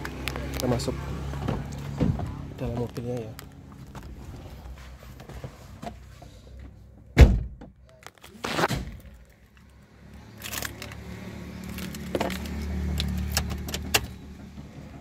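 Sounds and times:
car door thunk: 7.2 - 7.8.

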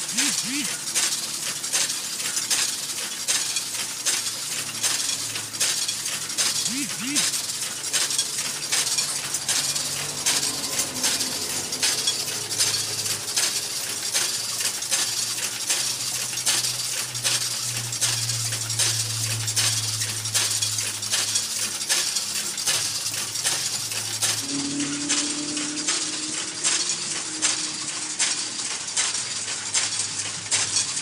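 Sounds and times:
machine humming: 0.0 - 1.0, 6.3 - 15.7, 22.7 - 29.6.

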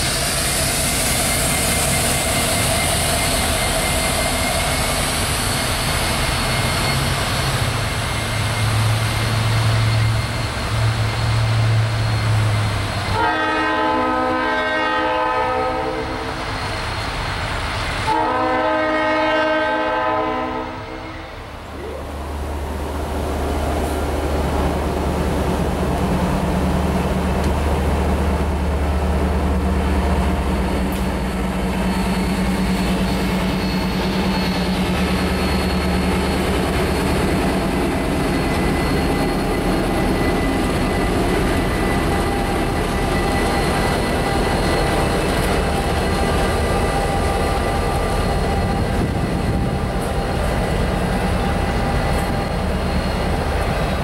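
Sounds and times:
locomotive engines droning: 0.0 - 54.0
train rumble: 0.0 - 54.0
thin high whines: 30.2 - 54.0.

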